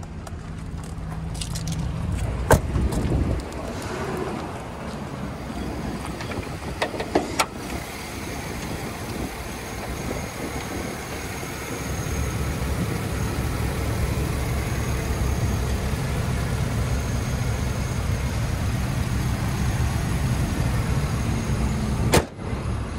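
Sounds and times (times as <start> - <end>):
engine idling: 0.0 - 22.9.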